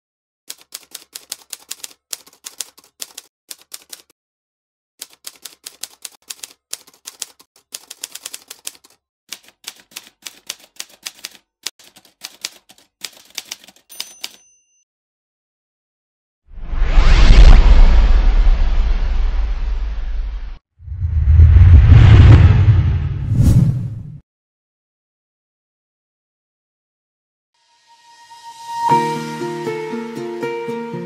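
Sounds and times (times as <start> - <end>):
typewriter keys clacking: 0.5 - 4.1, 5.0 - 14.5.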